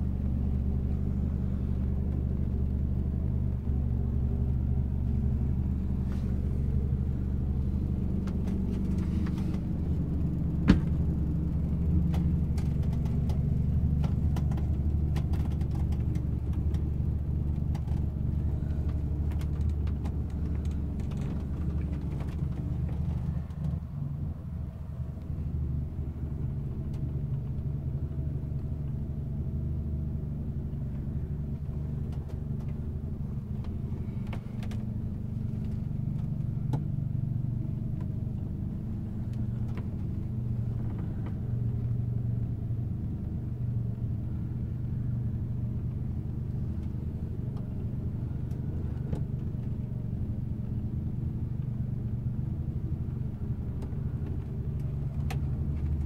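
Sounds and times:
boat engine rumbling: 0.0s - 56.0s.

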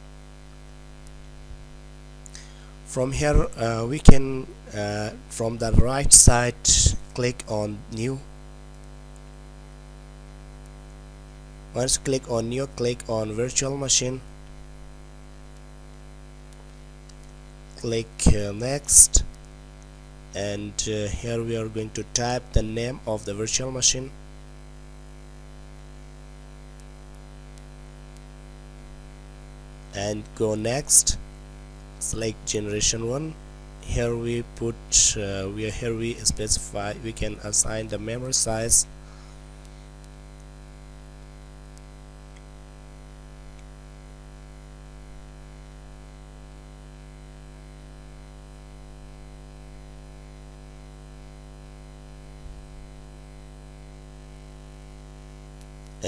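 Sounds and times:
electrical mains hum: 0.0s - 56.0s
recording hiss: 0.0s - 56.0s
faint ticks: 15.5s - 15.8s, 16.4s - 17.4s.

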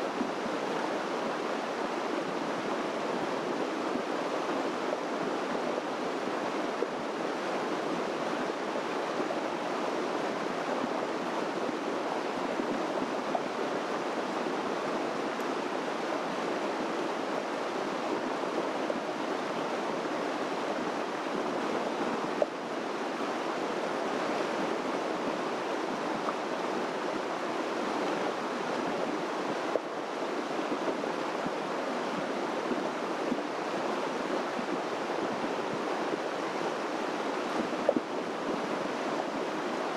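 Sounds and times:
running water rushing: 0.0s - 39.9s.

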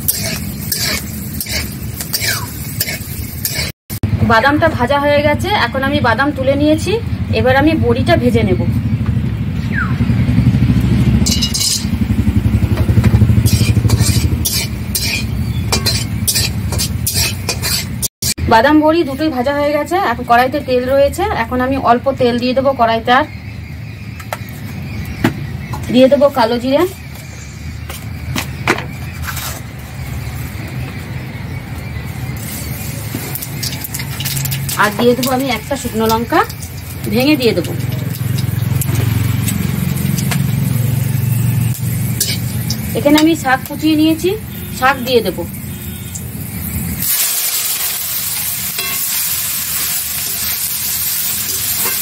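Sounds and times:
metal spatula scraping a pan: 0.0s - 3.8s, 13.4s - 18.4s, 42.0s - 42.6s, 47.0s - 52.0s
frying in hot oil: 0.0s - 7.1s, 10.5s - 28.2s, 28.9s - 52.0s
constant low rumble: 11.2s - 17.9s.

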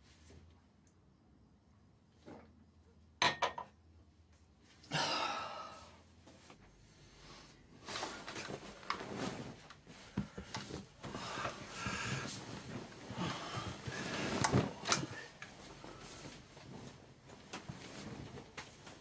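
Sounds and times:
glass clinking on sink: 3.2s - 3.7s
bedclothes rustling: 6.2s - 19.0s.

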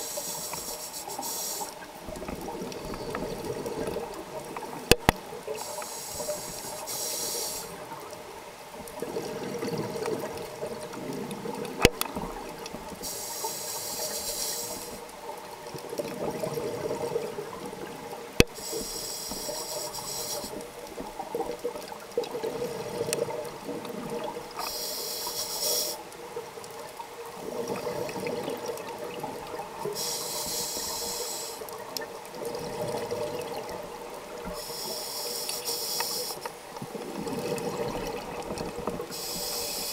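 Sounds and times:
regulator hissing inhale: 0.0s - 1.8s, 5.6s - 7.8s, 13.0s - 15.1s, 18.6s - 20.6s, 24.6s - 26.1s, 29.8s - 31.8s, 34.4s - 36.6s, 39.1s - 39.9s
exhaled bubbles rumbling: 8.8s - 13.0s, 15.8s - 18.2s, 31.8s - 34.5s, 36.7s - 39.1s.

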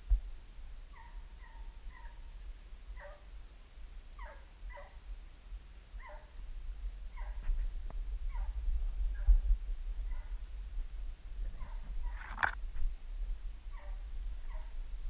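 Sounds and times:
hound yelping: 0.9s - 2.2s, 4.2s - 5.0s, 6.0s - 6.3s, 7.1s - 7.4s, 8.3s - 8.6s, 11.6s - 12.4s, 13.7s - 14.8s
low microphone rumble: 5.1s - 15.0s.

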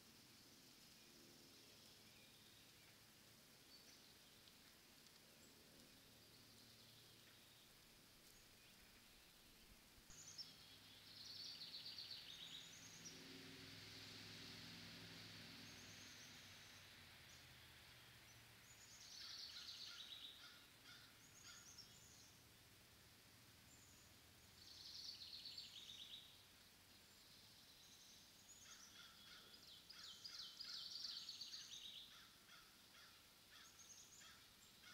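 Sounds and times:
songbird trilling: 18.8s - 22.2s.

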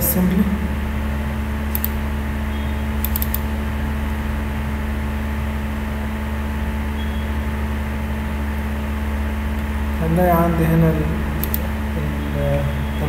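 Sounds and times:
low hum: 0.0s - 13.0s
computer mouse clicks: 1.7s - 2.0s, 3.0s - 3.5s, 11.4s - 11.6s.

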